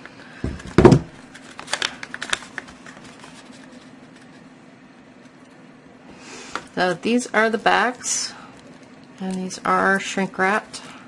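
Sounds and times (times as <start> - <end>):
faint steady hum: 0.0 - 11.0
loud thump on table: 0.4 - 1.1
packaging crinkling and clicking: 1.2 - 4.3.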